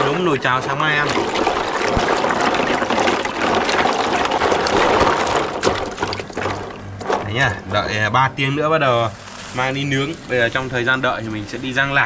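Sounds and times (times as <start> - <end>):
water pouring into a basin: 0.0 - 6.9.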